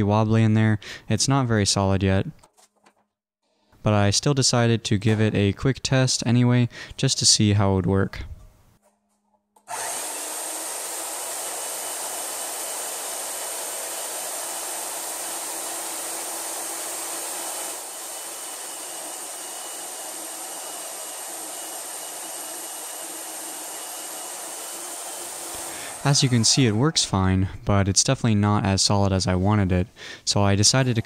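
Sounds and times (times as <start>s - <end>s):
band saw cutting metal: 9.6s - 27.2s.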